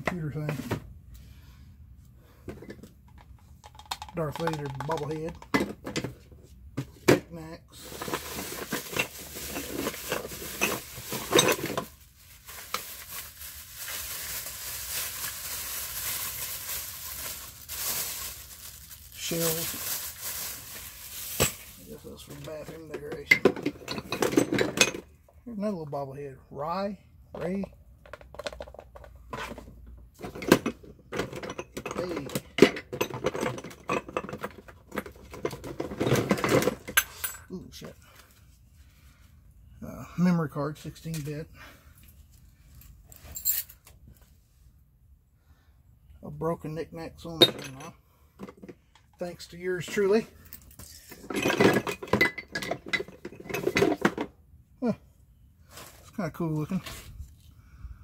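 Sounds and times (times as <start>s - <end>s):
plastic objects clattering: 2.5s - 25.1s, 27.4s - 37.2s, 47.4s - 54.3s
plastic bag rustling: 7.8s - 22.9s.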